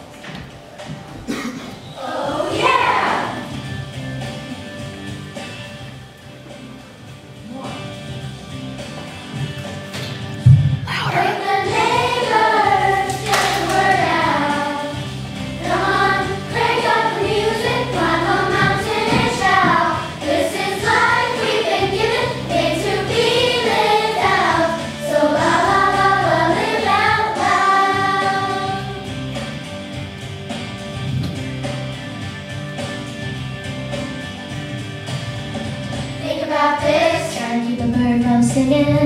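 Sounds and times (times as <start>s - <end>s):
children's choir singing: 1.3s - 3.6s, 10.9s - 29.1s, 36.2s - 37.8s
instrumental accompaniment with bass: 2.5s - 39.0s.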